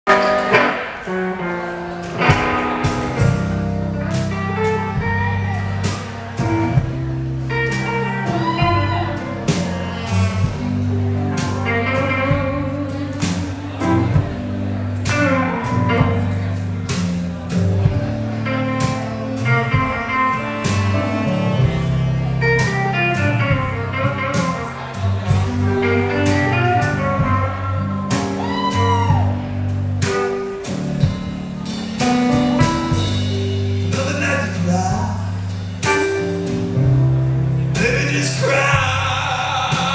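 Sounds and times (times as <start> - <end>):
electric guitar: 0.1 - 39.9
upright bass walking line: 0.5 - 39.9
saxophone: 4.0 - 14.4.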